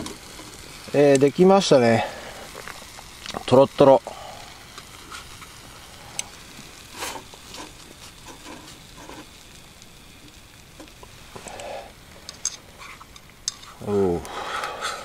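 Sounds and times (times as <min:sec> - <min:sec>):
bacon and eggs sizzling: 0:00.0 - 0:15.0.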